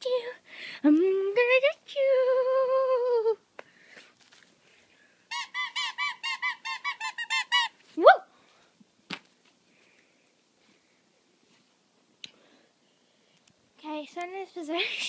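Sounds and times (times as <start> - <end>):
squeaky dog toy: 5.3 - 7.8.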